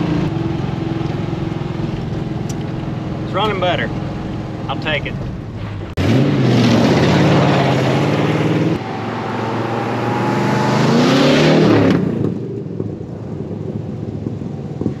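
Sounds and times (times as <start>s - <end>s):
truck engine accelerating: 0.0s - 15.0s.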